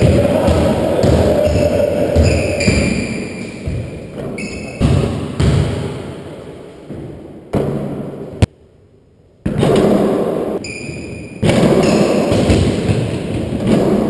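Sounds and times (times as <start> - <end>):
basketball bouncing on hardwood: 0.0 - 5.8
short high squeaks: 4.4 - 4.8, 10.6 - 12.2.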